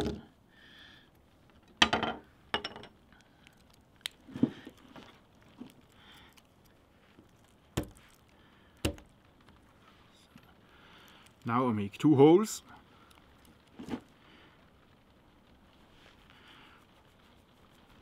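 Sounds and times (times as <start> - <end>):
wood pieces set on table: 1.8 - 2.9.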